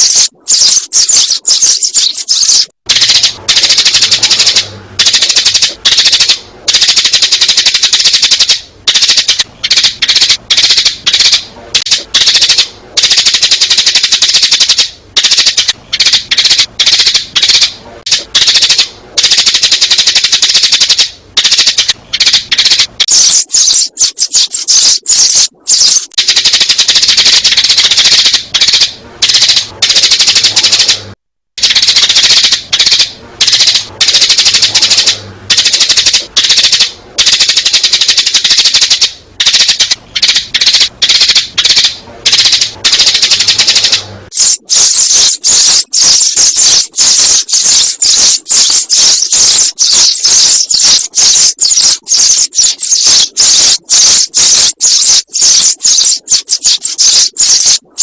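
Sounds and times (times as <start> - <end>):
sparrows chirping: 0.0 - 3.3, 23.0 - 26.2, 44.4 - 57.8.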